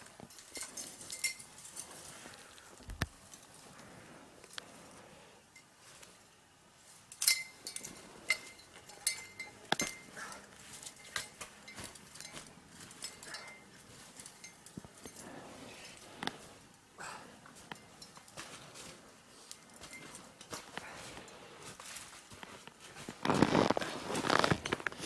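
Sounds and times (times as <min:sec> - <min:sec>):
metal trap clinking: 0:00.3 - 0:02.1, 0:07.1 - 0:15.4.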